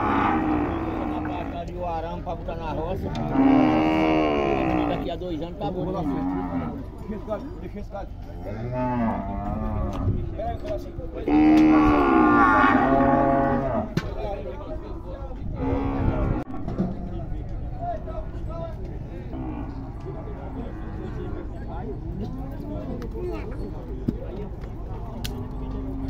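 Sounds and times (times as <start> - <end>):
cattle mooing: 0.0 - 1.7, 3.0 - 5.2, 5.9 - 7.1, 8.4 - 14.0, 15.6 - 16.7, 19.2 - 21.5.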